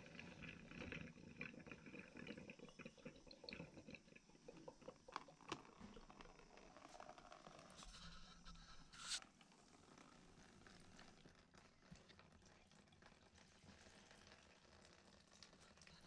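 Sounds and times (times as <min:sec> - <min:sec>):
water dripping into plastic tub: 0:00.0 - 0:07.8.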